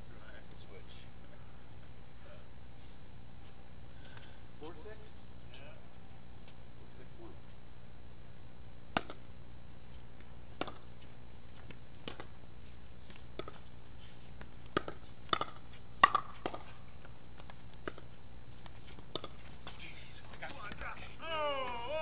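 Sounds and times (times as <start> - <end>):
paddles hitting plastic ball: 8.9 - 9.2, 10.2 - 10.9, 11.6 - 12.3, 13.0 - 13.7, 14.4 - 22.0.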